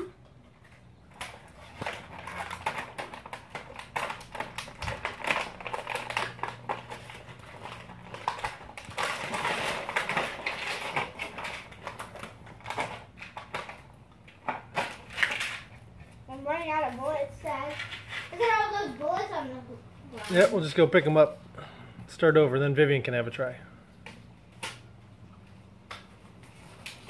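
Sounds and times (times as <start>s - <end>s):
toy blasters clicking and rattling: 1.1s - 13.8s, 14.4s - 15.8s, 20.1s - 20.7s.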